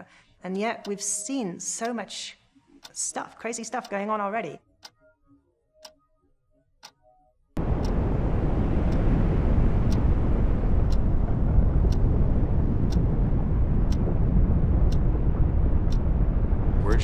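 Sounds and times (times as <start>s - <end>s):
clock ticking: 0.6s - 2.2s, 2.8s - 5.0s, 5.8s - 6.0s, 6.8s - 7.0s, 7.6s - 8.1s, 10.9s - 11.1s, 15.9s - 16.1s.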